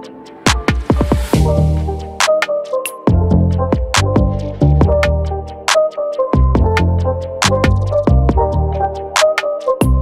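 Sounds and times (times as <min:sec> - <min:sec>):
electronic music with drum machine: 0:00.0 - 0:10.0.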